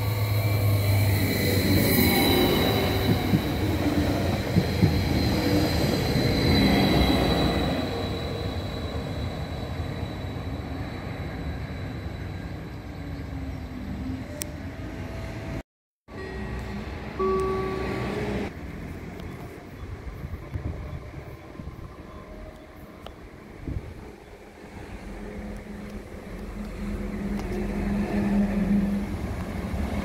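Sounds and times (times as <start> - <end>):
wheel squeal: 0.0 - 13.2
train rolling past: 0.0 - 30.0.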